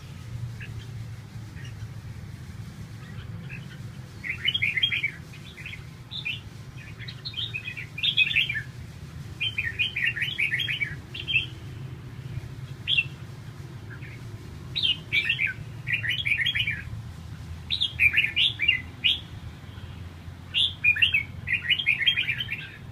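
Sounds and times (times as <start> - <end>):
birds singing chirpy warbles: 0.0 - 17.0, 17.6 - 22.9.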